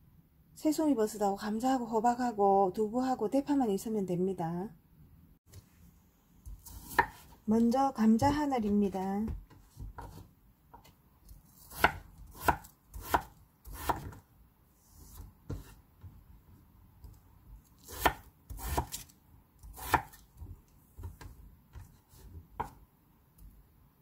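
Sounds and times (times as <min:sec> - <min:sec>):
knife slicing potato: 0:06.4 - 0:14.2, 0:15.0 - 0:15.8, 0:17.6 - 0:22.8.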